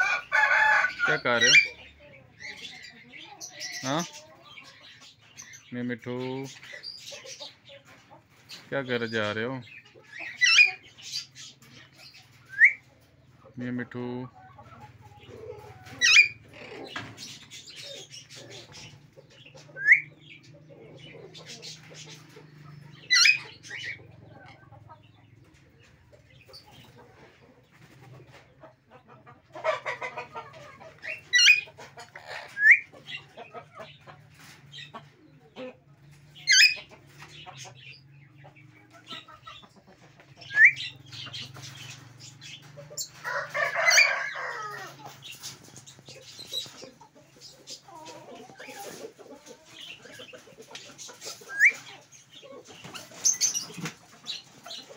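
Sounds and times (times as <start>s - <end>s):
parakeets screeching: 0.0s - 5.7s, 8.3s - 12.9s, 15.0s - 24.1s, 29.6s - 34.9s, 36.4s - 39.7s, 40.3s - 54.9s.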